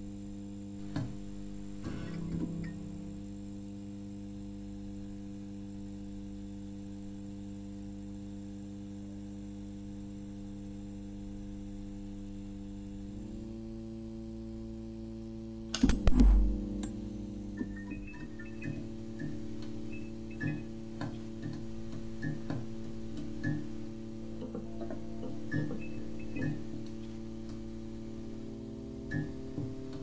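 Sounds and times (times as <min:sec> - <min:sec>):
electric hum drone: 0:00.0 - 0:30.0.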